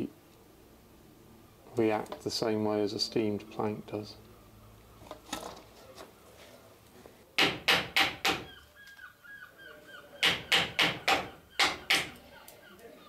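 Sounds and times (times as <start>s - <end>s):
hammer striking chisel into wood: 7.4s - 8.5s, 10.2s - 12.2s.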